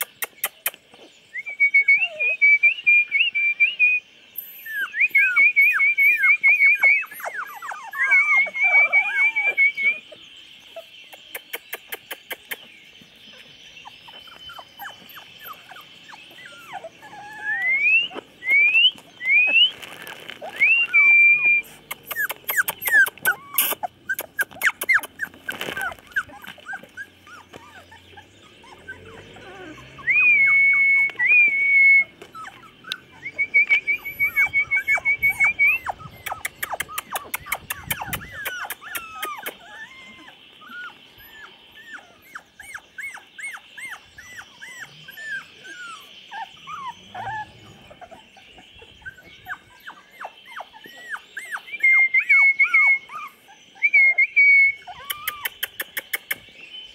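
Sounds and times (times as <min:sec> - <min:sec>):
puppies whimpering and squeaking: 0:00.0 - 0:03.1, 0:03.8 - 0:56.9
high whistling tone: 0:16.6 - 0:19.8, 0:20.5 - 0:22.3, 0:30.1 - 0:36.1.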